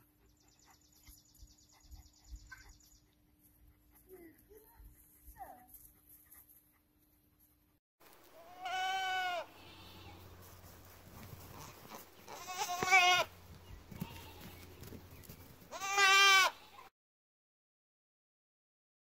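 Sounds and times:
goat bleating: 8.4s - 10.4s, 11.4s - 14.7s, 15.7s - 16.9s.

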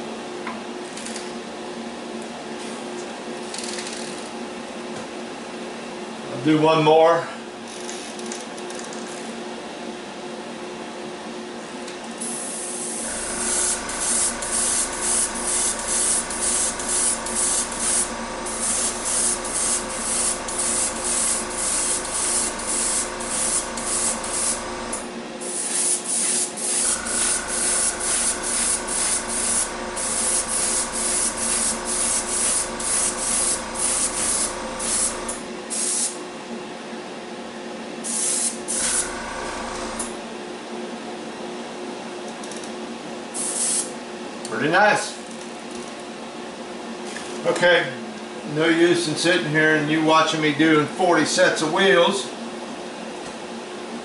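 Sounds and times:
airbrush spraying bursts: 12.2s - 36.2s, 38.1s - 40.0s, 43.4s - 43.9s
steady hum: 12.3s - 25.7s, 26.3s - 35.7s.

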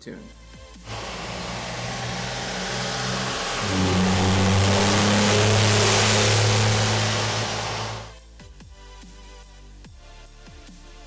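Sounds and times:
diesel engine accelerating: 0.8s - 8.2s
loud rushing noise: 0.9s - 8.2s.

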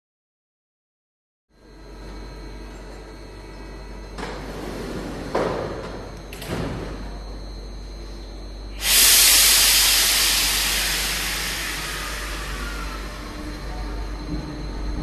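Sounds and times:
compressed air hiss: 8.8s - 13.4s.

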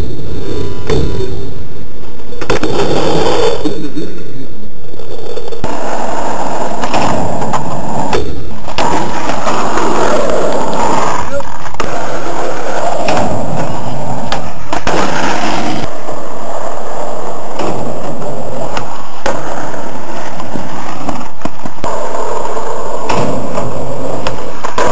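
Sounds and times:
skateboard wheels rolling: 0.0s - 24.9s
skateboard clacking on ground: 5.6s - 24.9s.

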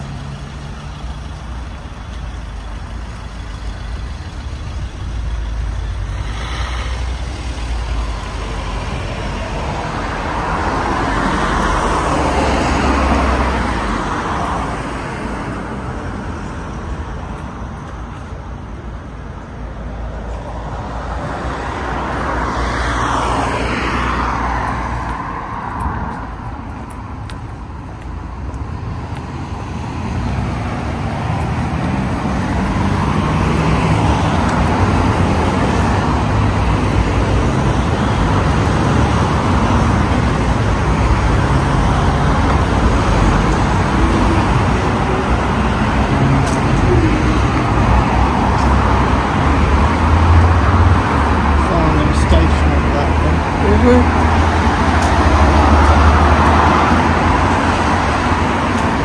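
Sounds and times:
rush of traffic: 0.0s - 59.0s
vehicle passing by: 29.6s - 59.0s.

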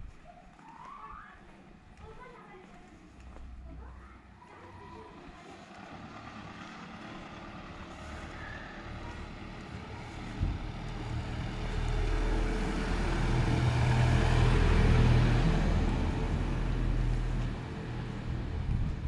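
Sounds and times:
car driving past: 4.7s - 19.0s.

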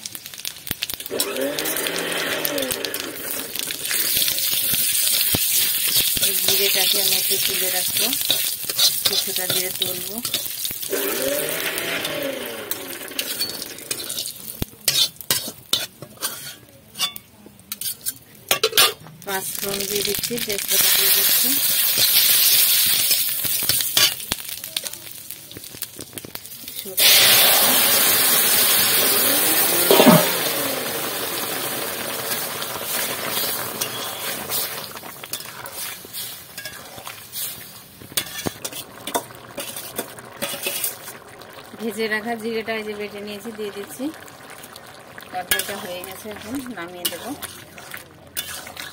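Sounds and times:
seeds sizzling in oil: 0.0s - 48.9s
metal stirrer scraping pan: 1.1s - 4.3s, 5.6s - 19.0s, 29.3s - 30.9s, 33.2s - 41.1s, 45.5s - 48.9s.

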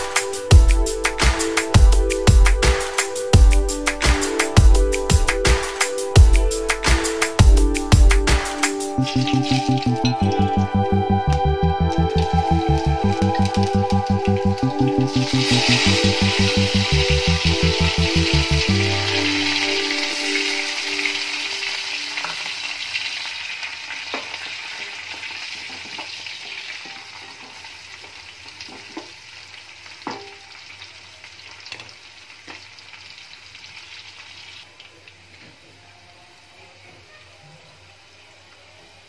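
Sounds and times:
onions sizzling in oil: 8.8s - 35.4s.

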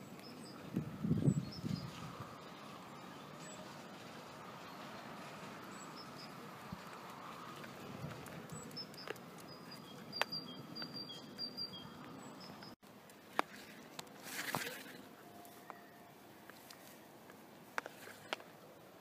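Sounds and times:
scattered clicks: 6.9s - 14.2s.

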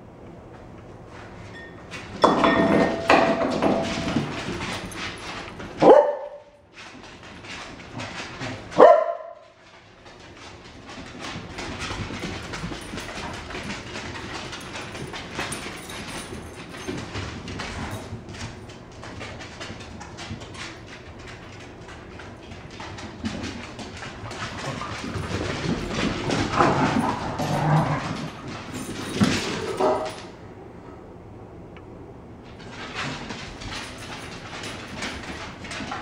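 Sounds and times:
claws clicking on hard floor: 2.4s - 30.3s, 32.5s - 36.0s
dog barking: 5.8s - 6.4s, 8.8s - 9.4s.

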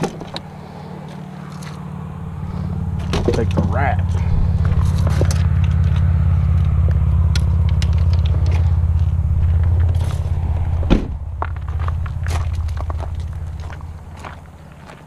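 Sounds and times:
truck engine idling: 0.0s - 15.0s
truck door thud: 10.8s - 11.2s.

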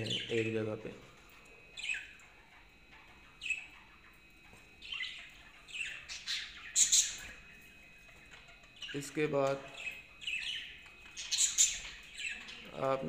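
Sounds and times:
budgerigars chirping and squawking: 0.0s - 13.0s.

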